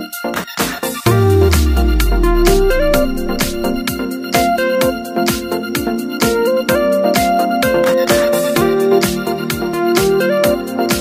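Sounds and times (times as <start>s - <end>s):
electronic music with keyboard melody: 1.1s - 3.9s.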